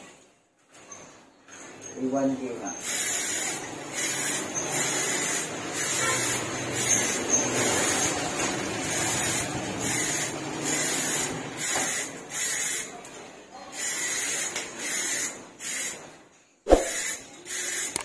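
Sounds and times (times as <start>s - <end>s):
aerosol spray can hissing: 16.7s - 17.2s.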